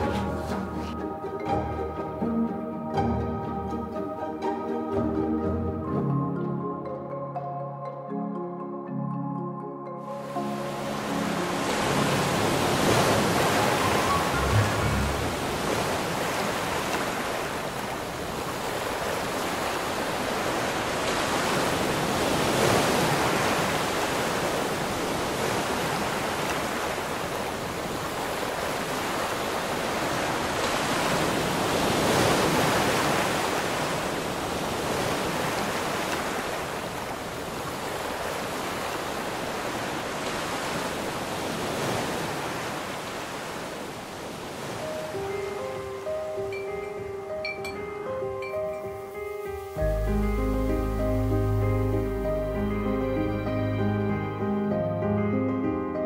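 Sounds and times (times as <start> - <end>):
waves rushing: 0.0 - 1.9, 10.1 - 53.8
music: 0.0 - 15.7, 44.8 - 56.0.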